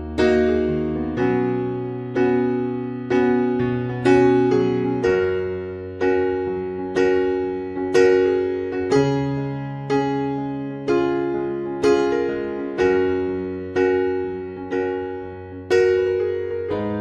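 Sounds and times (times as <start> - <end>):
electric piano chords: 0.0 - 17.0.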